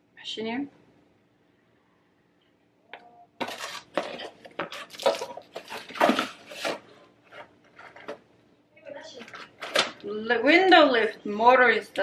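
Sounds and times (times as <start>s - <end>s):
hard objects clattering in a box: 3.4s - 8.2s.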